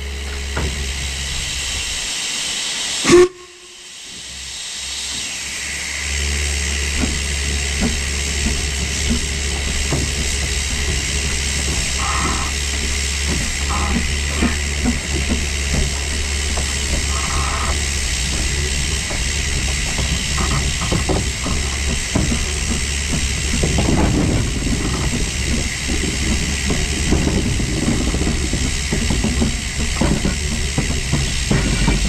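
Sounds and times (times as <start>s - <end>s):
locomotive low rumble: 0.0s - 32.0s
steam hissing: 0.0s - 32.0s
metal clanks and knocks: 6.9s - 32.0s.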